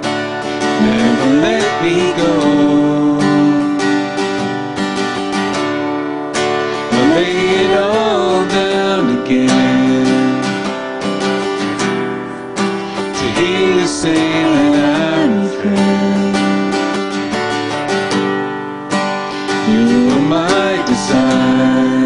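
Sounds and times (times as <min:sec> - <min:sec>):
acoustic guitar strumming: 0:00.0 - 0:22.0
man singing: 0:00.6 - 0:04.4, 0:06.8 - 0:10.8, 0:12.9 - 0:17.1, 0:19.5 - 0:22.0.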